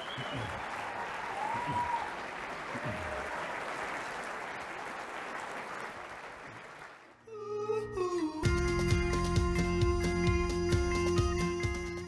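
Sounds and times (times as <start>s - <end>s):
audience applauding: 0.0s - 7.2s
music with held notes: 7.8s - 12.0s.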